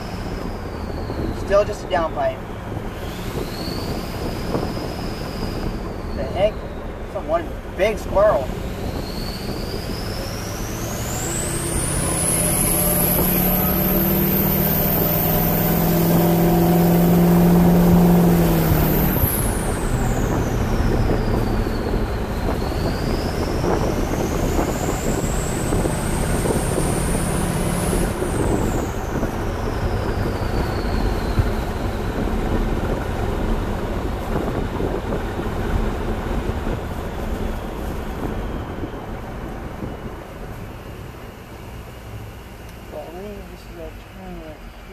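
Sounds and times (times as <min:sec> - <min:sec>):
high-pitched turbo whistle: 0:00.0 - 0:02.3, 0:02.9 - 0:07.6, 0:08.2 - 0:32.5
diesel engine drone: 0:00.0 - 0:44.9.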